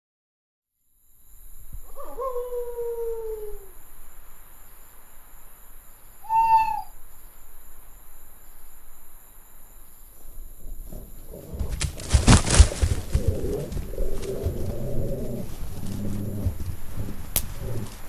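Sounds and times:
faint steady hiss: 0.8 - 18.0
owl hooting: 1.7 - 3.9, 6.0 - 7.1, 10.9 - 18.0.

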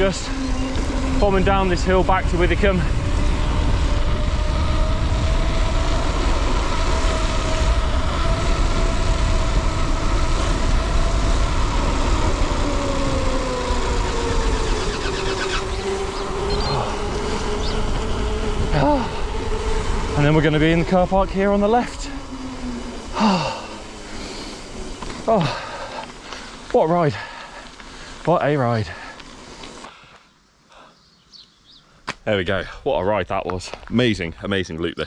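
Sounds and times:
wind rumble on microphone: 0.0 - 26.8
bike tyres humming: 0.0 - 35.0.

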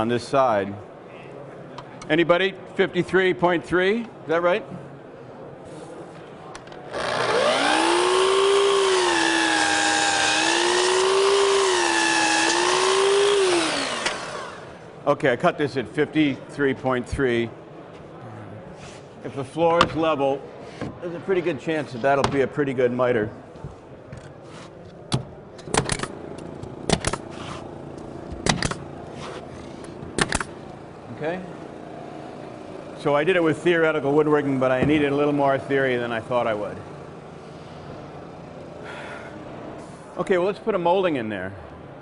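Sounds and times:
saw blade cutting wood: 6.9 - 14.7
miter saw motor whine: 6.9 - 14.8
pneumatic nailer firing: 6.9 - 14.8, 26.8 - 27.4, 28.4 - 28.8, 30.1 - 30.6.

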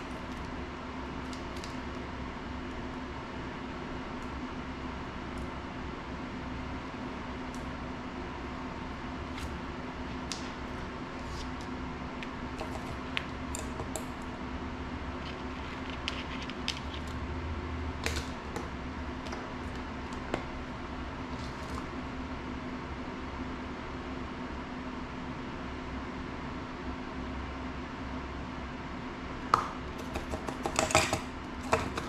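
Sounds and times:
fan-like hum: 0.0 - 32.0
small tools clicking and tapping: 29.6 - 32.0.

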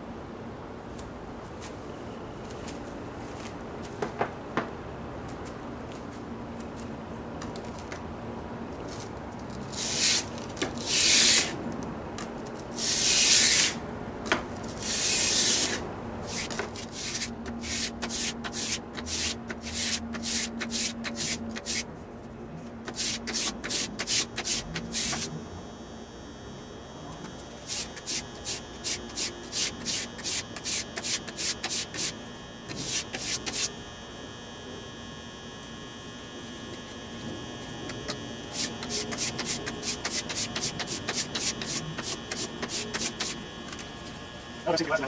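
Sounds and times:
plane iron scraping on sandpaper: 9.7 - 11.6, 12.8 - 13.8, 14.7 - 21.9, 22.9 - 25.3, 27.6 - 33.7, 37.9 - 43.4.

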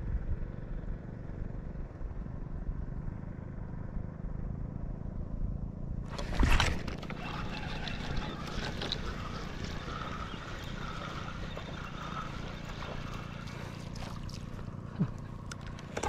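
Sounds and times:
wind: 0.0 - 16.0
water noise around boat: 6.0 - 16.0.

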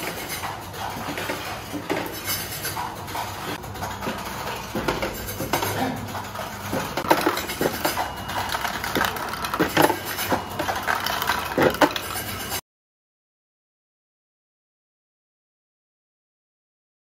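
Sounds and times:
steel balls clinking and rattling: 0.0 - 12.6.

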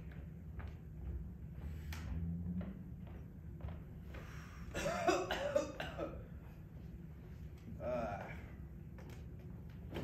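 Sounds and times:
low background hum: 0.0 - 10.0
person gasping: 7.8 - 8.6.

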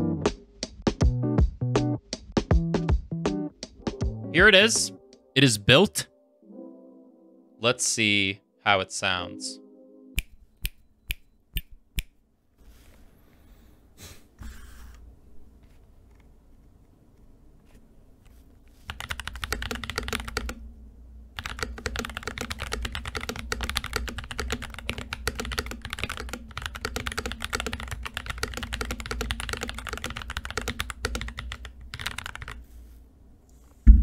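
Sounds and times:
mechanical keyboard typing: 18.9 - 20.6, 21.4 - 32.6.

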